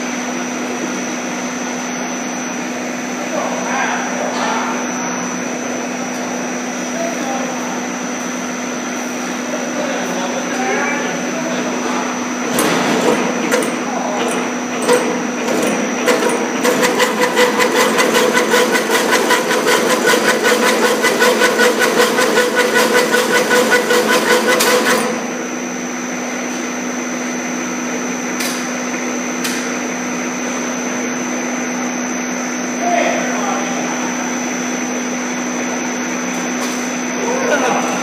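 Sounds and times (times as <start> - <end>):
motor hum: 11.0 - 26.6
fast mechanical clatter: 12.5 - 25.3
scattered machine clicks: 13.5 - 25.1.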